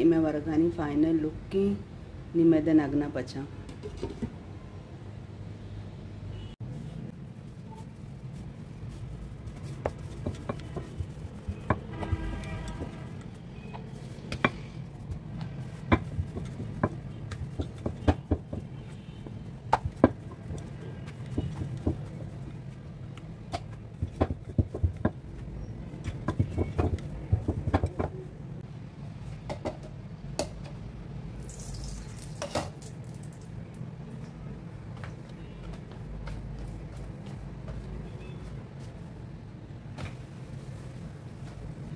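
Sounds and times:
rolling pin knocking on stone: 9.8s - 13.0s, 15.8s - 18.9s, 19.7s - 22.2s, 23.5s - 25.2s, 26.0s - 28.2s.

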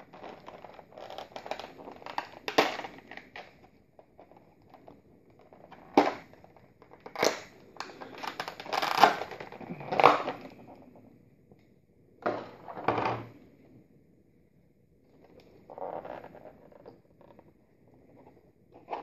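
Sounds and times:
plastic packaging crackling: 0.0s - 3.5s, 4.2s - 10.6s.

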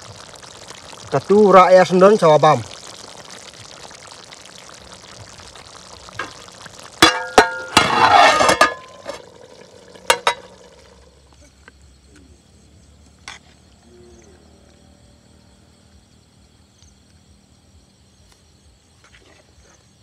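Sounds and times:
low steady hiss: 0.0s - 20.0s
metal lid clanking on wok: 7.0s - 9.3s, 10.0s - 10.7s
metal scraping on metal: 7.4s - 9.2s.

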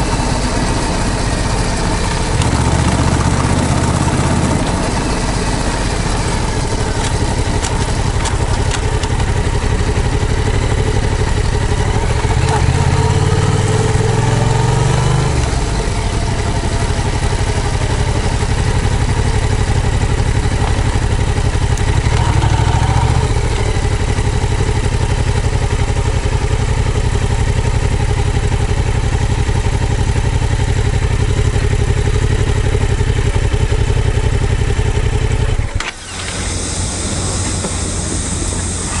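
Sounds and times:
motorcycle engine running: 0.0s - 39.0s
steady hiss: 36.2s - 39.0s.

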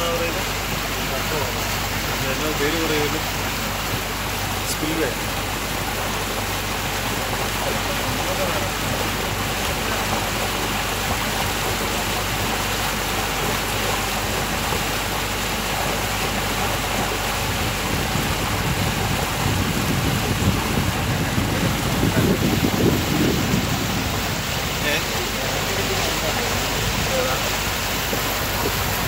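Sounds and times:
boat rushing across water: 0.0s - 29.0s
low rumble: 16.5s - 29.0s.

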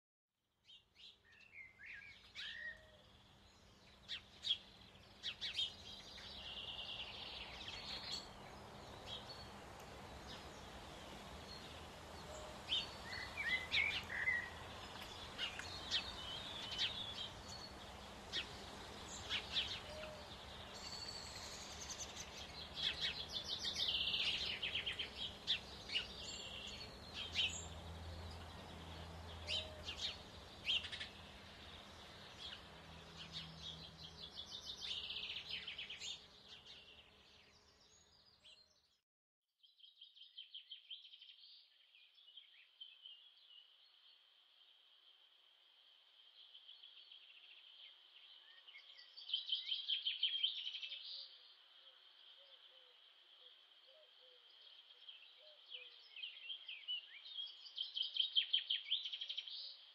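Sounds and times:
birds singing and chirping: 0.7s - 38.8s, 53.9s - 59.8s
outdoor hiss: 5.8s - 36.5s.

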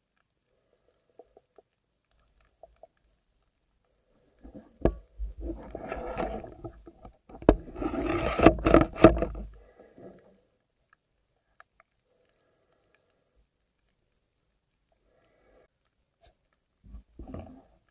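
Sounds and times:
swimmer moving underwater: 4.2s - 10.4s.

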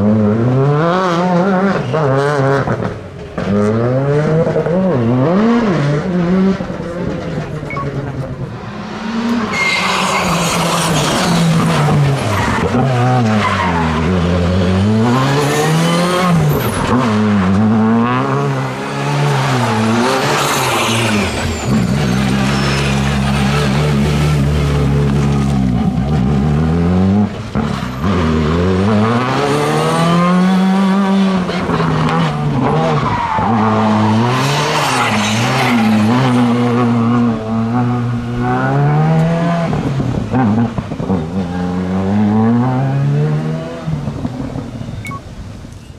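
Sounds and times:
rally car engine revving: 0.0s - 45.2s
tyres squealing on tarmac: 9.4s - 14.1s, 19.3s - 24.0s.

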